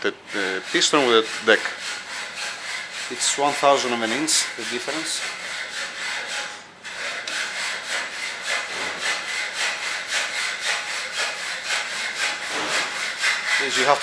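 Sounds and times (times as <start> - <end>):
hand tool rasping: 0.0 - 14.0.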